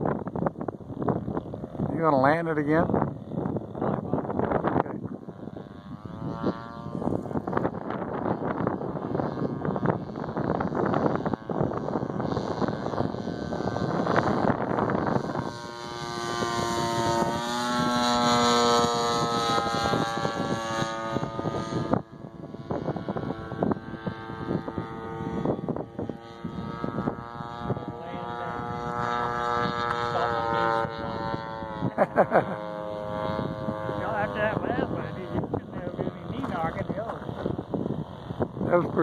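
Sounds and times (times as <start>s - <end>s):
model plane engine droning: 0.0s - 39.0s
wind buffeting microphone: 0.0s - 39.0s.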